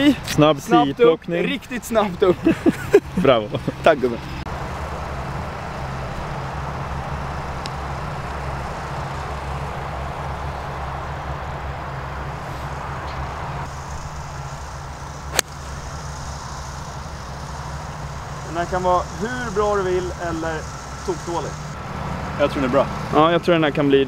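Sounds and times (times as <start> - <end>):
steady low hum: 4.4 - 22.0
golf club striking ball: 15.3 - 15.6.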